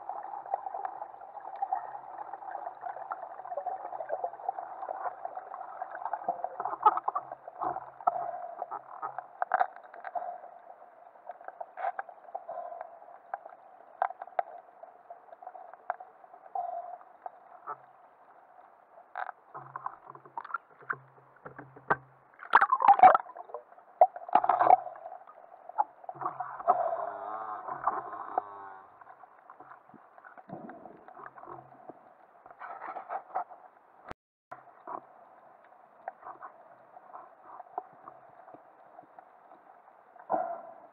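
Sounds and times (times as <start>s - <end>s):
water bubbling underwater: 0.0s - 18.1s, 19.2s - 32.3s
water splashing: 19.6s - 25.2s.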